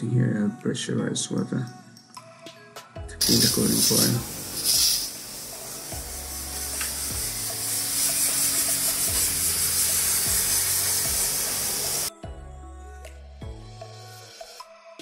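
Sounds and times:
background music with steady beat: 0:00.0 - 0:15.0
pressurized water jet hissing: 0:03.2 - 0:12.1.

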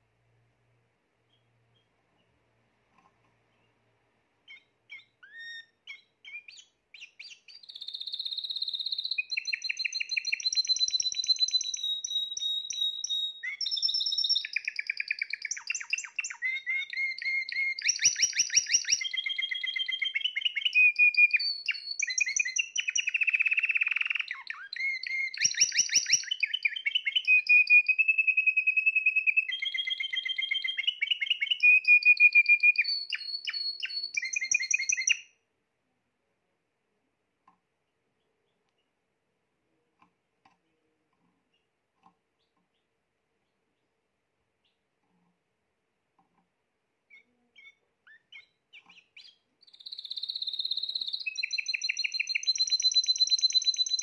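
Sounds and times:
canary singing trills: 0:04.4 - 0:35.4, 0:47.0 - 0:54.0.

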